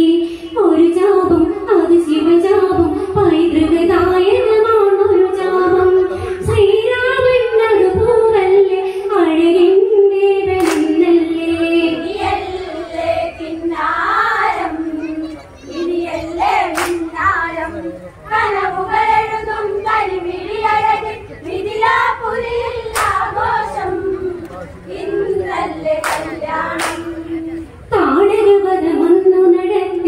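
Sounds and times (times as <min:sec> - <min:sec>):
women singing folk song: 0:00.0 - 0:15.2, 0:15.9 - 0:30.0
sharp clap-like hit: 0:10.6 - 0:11.0, 0:16.7 - 0:17.1, 0:22.9 - 0:23.2, 0:26.0 - 0:27.1.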